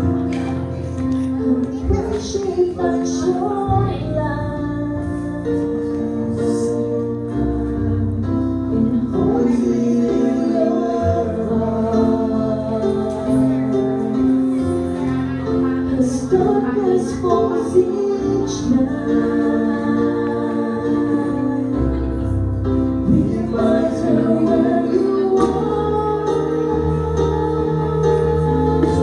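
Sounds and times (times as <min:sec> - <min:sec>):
instrumental accompaniment: 0:00.0 - 0:29.0
woman singing: 0:01.5 - 0:07.4.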